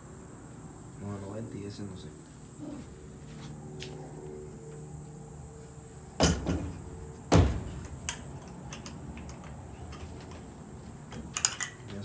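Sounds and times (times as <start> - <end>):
loud thump: 6.2 - 7.8.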